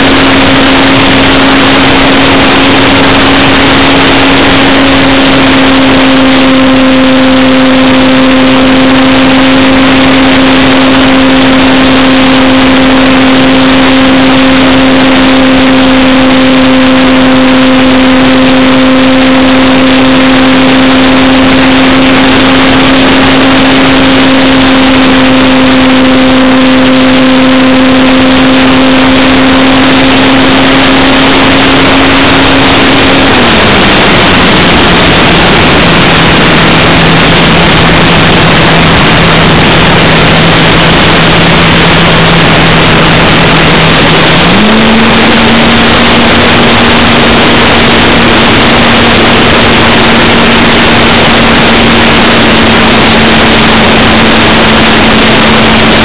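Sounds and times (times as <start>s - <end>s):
electric motor and propeller hum: 0.0s - 56.0s
air rushing: 29.9s - 56.0s.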